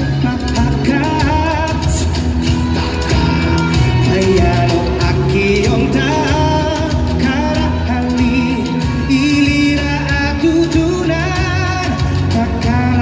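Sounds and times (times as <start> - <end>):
man singing into a microphone: 0.0 - 13.0
pop backing music: 0.0 - 13.0.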